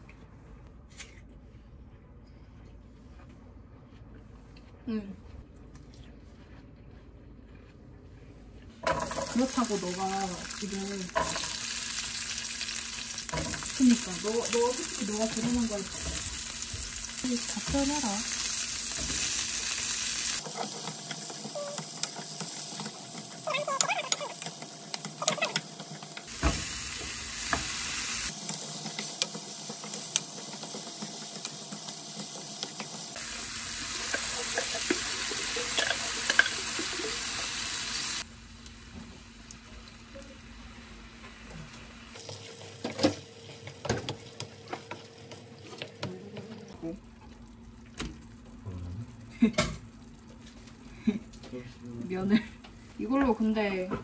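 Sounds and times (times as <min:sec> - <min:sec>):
food sizzling in frying pan: 0:08.8 - 0:46.0.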